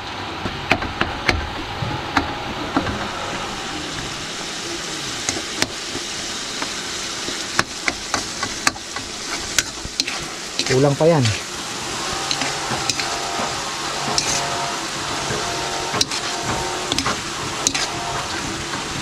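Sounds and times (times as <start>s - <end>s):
tomatoes sizzling: 0.0s - 19.0s
metal spoon scraping a wok: 9.2s - 11.4s, 12.3s - 18.4s.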